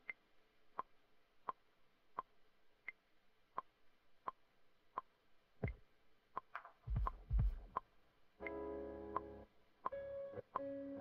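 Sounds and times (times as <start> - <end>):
low drum hits: 6.9 - 7.7
metronome clicking: 8.4 - 11.0.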